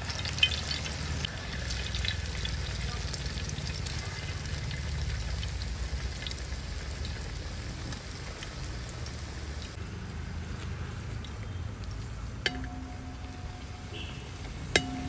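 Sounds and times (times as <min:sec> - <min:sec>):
deep-frying sizzle with crackles: 0:00.0 - 0:15.0
skimmer clinking against metal pan: 0:12.5 - 0:15.0.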